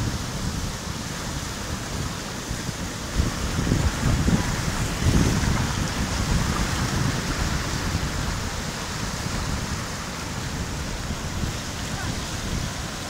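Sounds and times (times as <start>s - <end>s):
surf washing over rocks: 0.0s - 13.0s.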